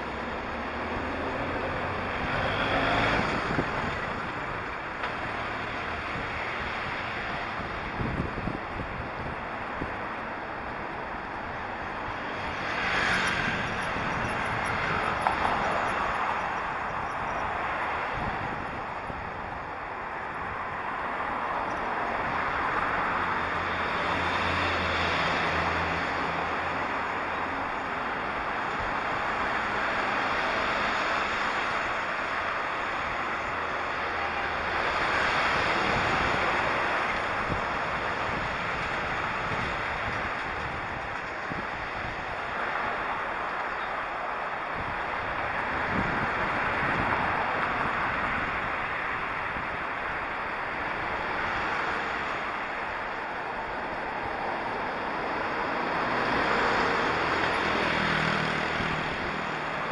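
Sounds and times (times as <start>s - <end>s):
passing traffic: 0.0s - 59.9s
passing vehicle engine hum: 0.0s - 59.9s
wind rushing over microphone: 0.0s - 59.9s.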